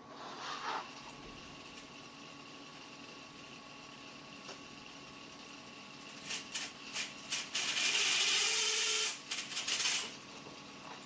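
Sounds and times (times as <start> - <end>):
toy car motor whirring: 6.2 - 10.2.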